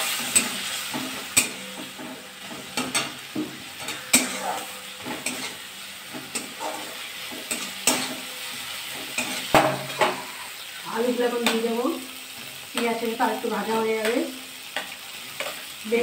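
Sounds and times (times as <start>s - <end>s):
metal spatula scraping a pan: 0.0s - 10.6s
soft frying sizzle: 0.0s - 16.0s.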